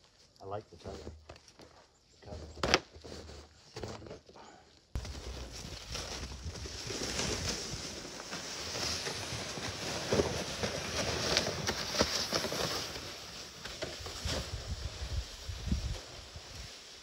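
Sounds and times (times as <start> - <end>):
footsteps crunching in snow: 5.0 - 17.0
sleds dragging over snow: 5.0 - 17.0.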